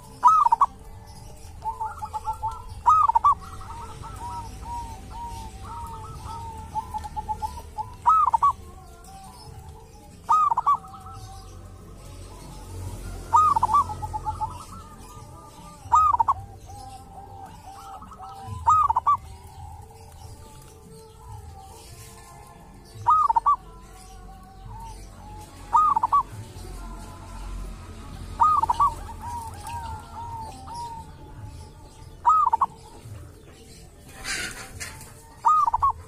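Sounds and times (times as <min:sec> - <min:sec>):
dove cooing: 0:00.0 - 0:36.0.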